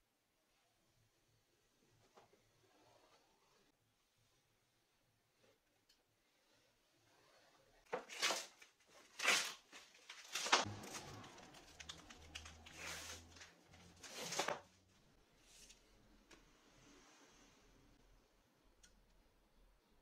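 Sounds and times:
plastic covering tearing: 0:07.9 - 0:14.7.

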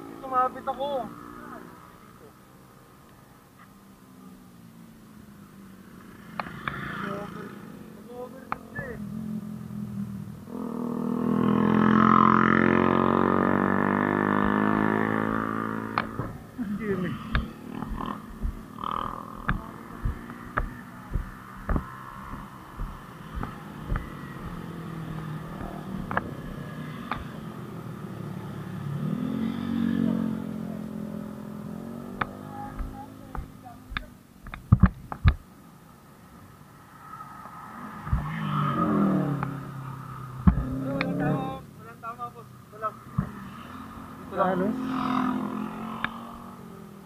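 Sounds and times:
motorcycle engines passing: 0:00.0 - 0:35.6, 0:36.2 - 0:47.0
light knocks: 0:17.3 - 0:24.6.

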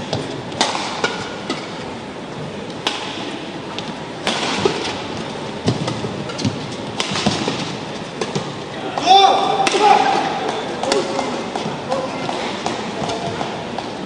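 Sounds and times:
sports hall background noise: 0:00.0 - 0:14.0
badminton racket hitting shuttlecock: 0:04.2 - 0:05.1, 0:05.7 - 0:13.9.

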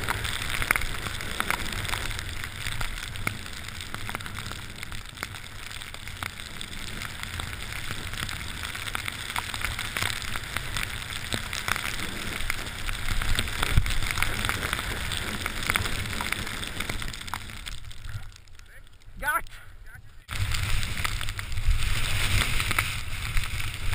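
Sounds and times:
snow spray ticking on camera: 0:00.0 - 0:19.6, 0:20.2 - 0:23.9
wind rumbling on microphone: 0:00.0 - 0:23.9
skis hissing through snow: 0:06.5 - 0:17.1, 0:20.3 - 0:23.9.

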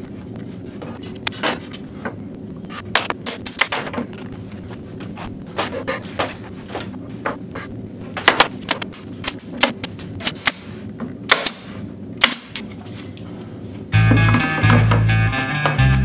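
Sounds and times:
pneumatic nailer shots: 0:08.3 - 0:12.7.

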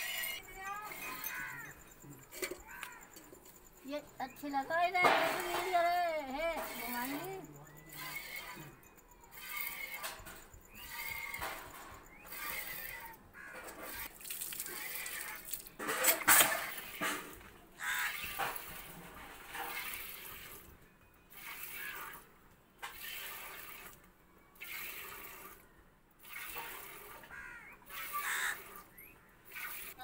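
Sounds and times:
milk squirting into steel pail: 0:06.6 - 0:07.3, 0:13.6 - 0:20.7, 0:21.3 - 0:24.0, 0:24.6 - 0:25.6, 0:26.2 - 0:28.9, 0:29.5 - 0:30.0.

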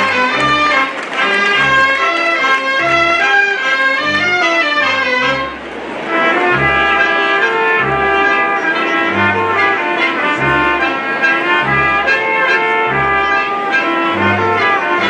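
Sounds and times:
brass band playing: 0:00.0 - 0:15.0
low bass note: 0:06.3 - 0:13.5.

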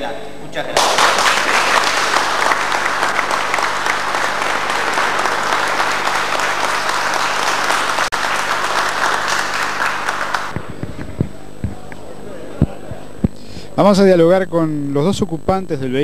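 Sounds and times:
crowd applauding: 0:00.8 - 0:10.6.

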